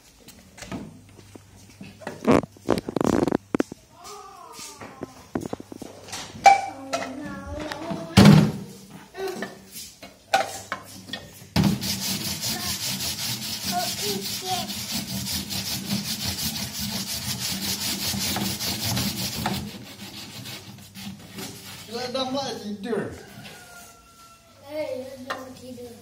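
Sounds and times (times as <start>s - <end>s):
brush scrubbing plastic: 11.6s - 22.3s.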